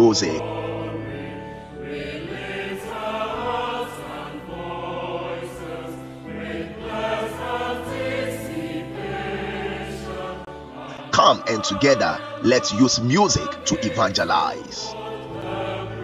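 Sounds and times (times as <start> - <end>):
choir singing: 0.0 - 16.0
musical accompaniment: 0.0 - 16.0.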